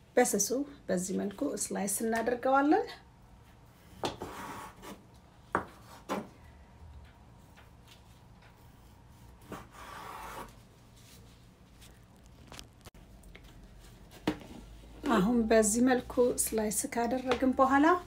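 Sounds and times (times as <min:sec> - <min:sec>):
knife scraping board: 0:03.8 - 0:06.3, 0:08.6 - 0:10.6.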